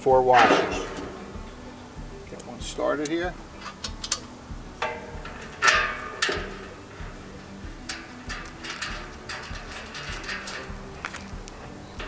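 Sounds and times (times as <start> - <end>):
metal clinks and knocks: 3.6 - 12.0.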